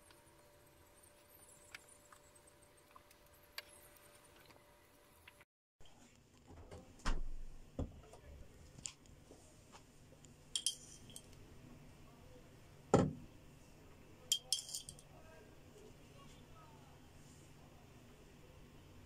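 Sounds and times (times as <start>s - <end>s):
teaspoon clinking against glass jar: 10.6s - 11.3s, 14.3s - 15.0s.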